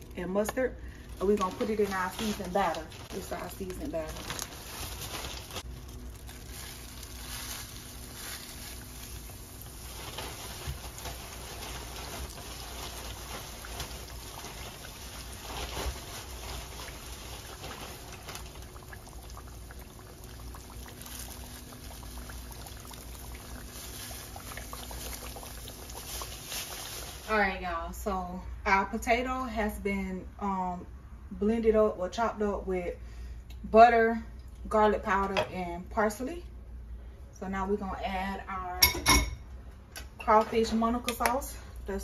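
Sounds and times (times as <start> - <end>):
fish frying in hot oil: 1.2 - 27.3.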